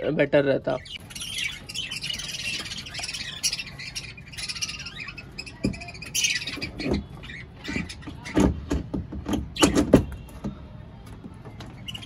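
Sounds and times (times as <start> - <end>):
budgerigars chattering and squawking: 0.0 - 8.6.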